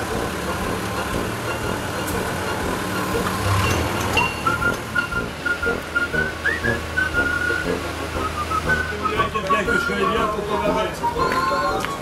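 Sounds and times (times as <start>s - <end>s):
forklift engine humming: 0.0s - 12.0s
person whistling a tune: 4.2s - 12.0s.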